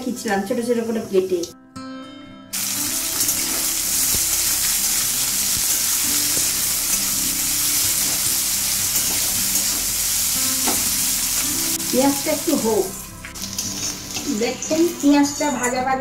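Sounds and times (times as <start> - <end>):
onions sizzling in oil: 2.6 - 15.1.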